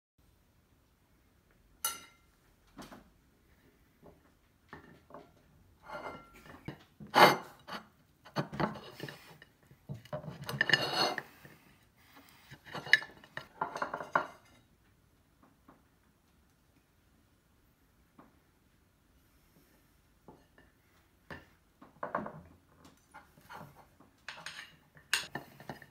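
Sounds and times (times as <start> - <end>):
spoon scraping ceramic plate: 5.8 - 9.4, 10.2 - 11.6, 12.5 - 14.5.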